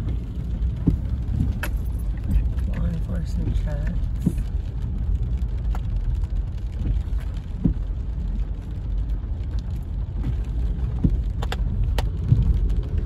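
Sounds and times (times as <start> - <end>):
engine and tyres rumbling: 0.0 - 13.0.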